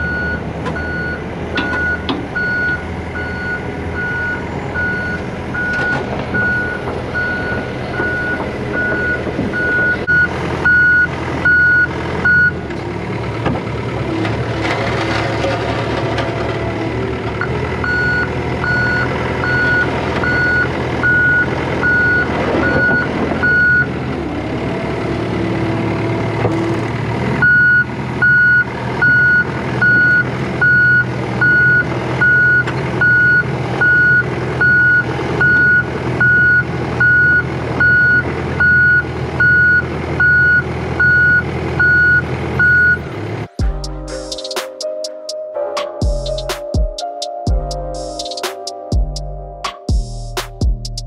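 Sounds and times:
engine running: 0.0s - 45.2s, 46.0s - 51.0s
backup alarm beeping: 27.4s - 43.0s.

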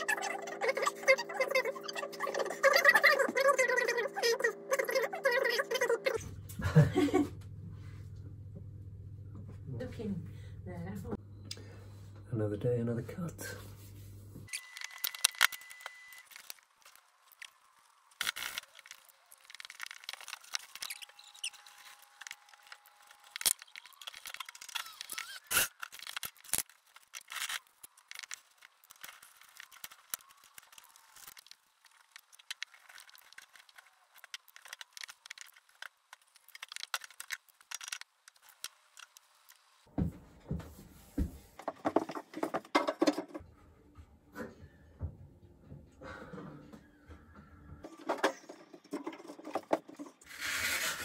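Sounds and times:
hand tools scraping wood: 48.9s - 51.0s.

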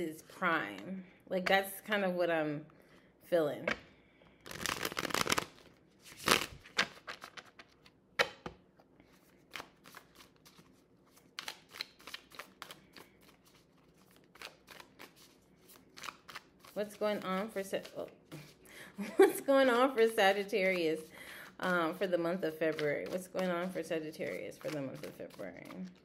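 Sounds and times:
cards being shuffled: 4.4s - 18.6s, 21.9s - 26.0s.

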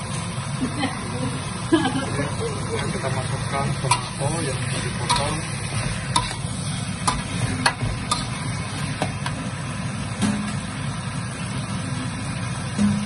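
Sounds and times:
ladle clinking against wok: 5.1s - 5.4s, 6.1s - 8.4s.

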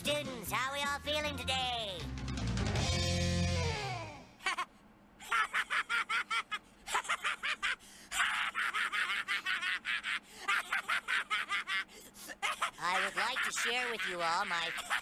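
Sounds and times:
high-pitched giggling: 4.4s - 15.0s.

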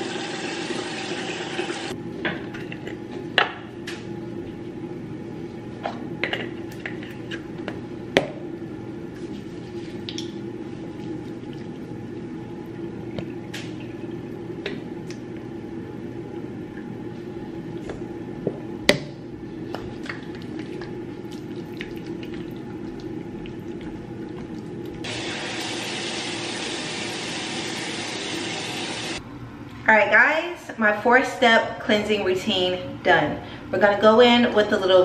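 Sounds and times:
water running from a tap: 0.0s - 2.0s, 25.0s - 29.2s
small water splashes and drips: 20.0s - 24.7s.

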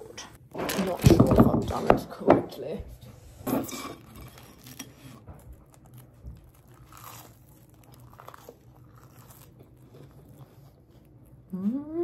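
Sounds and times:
chewing toasted sandwich crunches: 4.2s - 11.6s.

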